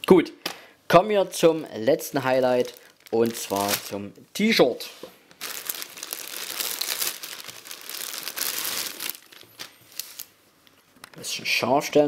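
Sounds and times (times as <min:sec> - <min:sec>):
plastic bag crinkling: 0:01.6 - 0:04.1, 0:05.3 - 0:10.4.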